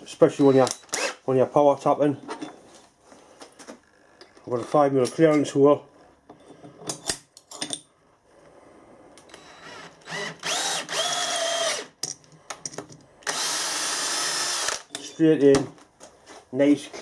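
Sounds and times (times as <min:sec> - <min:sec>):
drill clicks: 0:09.2 - 0:12.0, 0:13.2 - 0:15.1
drill motor whining: 0:09.3 - 0:12.0, 0:13.2 - 0:14.9.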